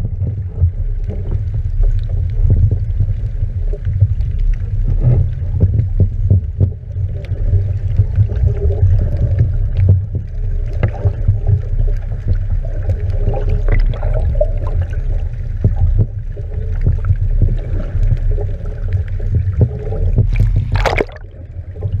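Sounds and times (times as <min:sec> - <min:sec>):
underwater knocks and clicks: 0:00.0 - 0:22.0
underwater rumble of water: 0:00.0 - 0:22.0
rushing splash: 0:20.3 - 0:21.3.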